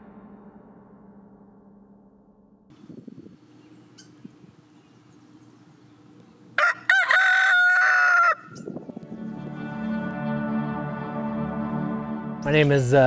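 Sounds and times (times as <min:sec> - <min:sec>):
faint low hum: 0:02.7 - 0:06.6
rooster crowing: 0:06.5 - 0:08.7.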